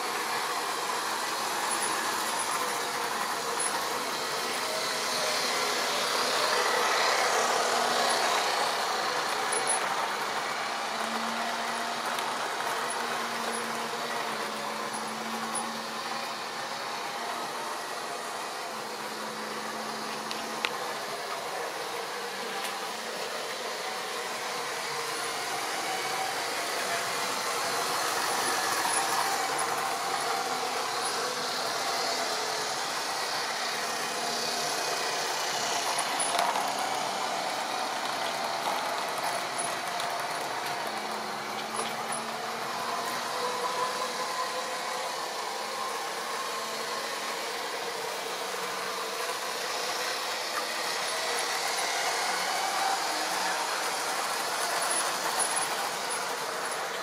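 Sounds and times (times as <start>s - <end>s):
electric motor whine: 0.0s - 57.0s
wheels rattling on rails: 25.4s - 32.3s, 35.4s - 43.3s.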